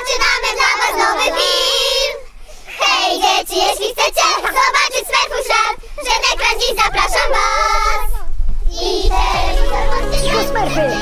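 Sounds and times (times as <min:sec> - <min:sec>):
childlike voices talking and singing: 0:00.0 - 0:11.0.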